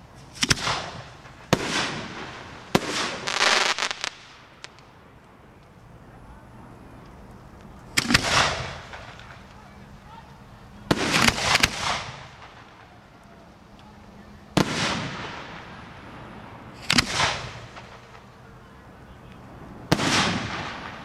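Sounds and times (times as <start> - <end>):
fireworks booming: 0.0 - 5.2, 7.9 - 9.5, 10.7 - 13.5, 14.5 - 21.0.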